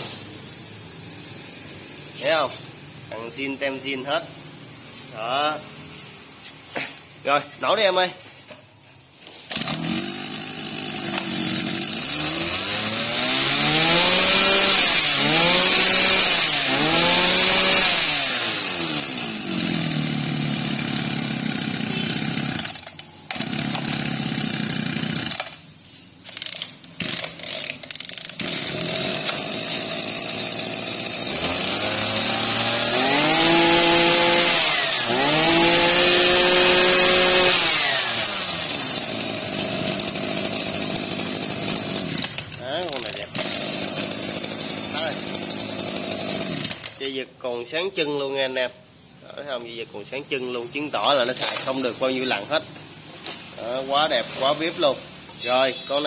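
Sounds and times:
brush cutter engine revving: 0:09.3 - 0:25.6, 0:26.2 - 0:47.1, 0:50.2 - 0:52.7.

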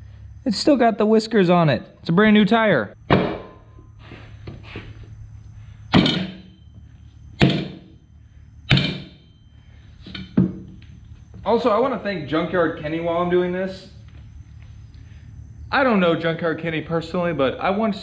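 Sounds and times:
tire thunking against wheel rim: 0:03.0 - 0:04.6, 0:05.9 - 0:06.6, 0:07.3 - 0:08.0, 0:08.6 - 0:09.3.

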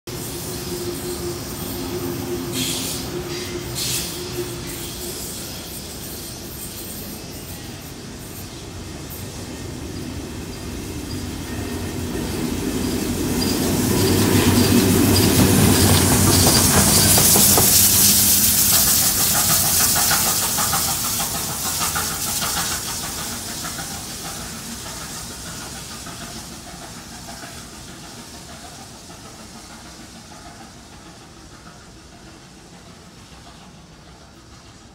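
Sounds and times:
loud hiss of steam: 0:00.1 - 0:34.9
wheels rumbling on rails: 0:08.9 - 0:34.9.

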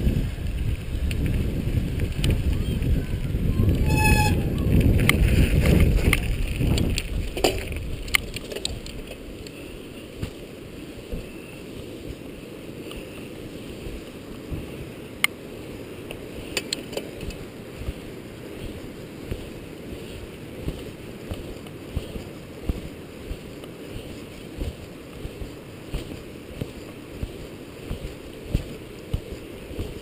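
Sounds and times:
bicycle tyres rumbling on pavement: 0:00.0 - 0:30.0
wind: 0:00.0 - 0:30.0
bike clicks and rattles: 0:00.1 - 0:09.6, 0:16.1 - 0:30.0.

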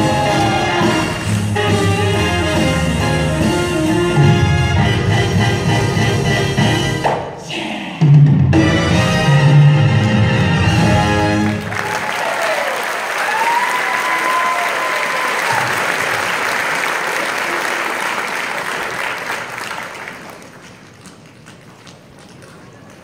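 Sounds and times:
audience applauding: 0:11.2 - 0:23.0
long cheer: 0:11.6 - 0:18.2.

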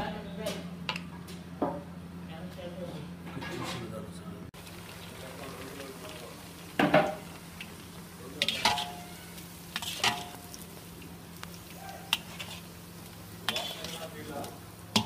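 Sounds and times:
oil sizzling: 0:04.6 - 0:15.0
metal skimmer scraping iron pan: 0:08.4 - 0:10.6, 0:12.1 - 0:12.8, 0:13.4 - 0:15.0.

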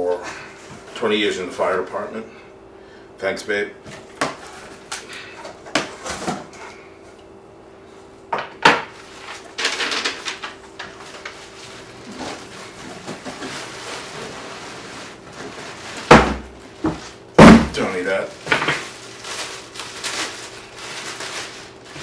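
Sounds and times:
plastic wrap rustling: 0:09.0 - 0:22.0.

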